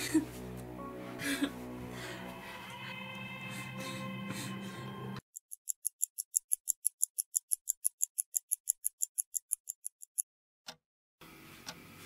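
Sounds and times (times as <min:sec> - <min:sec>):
clock ticking fast: 0:05.2 - 0:10.2.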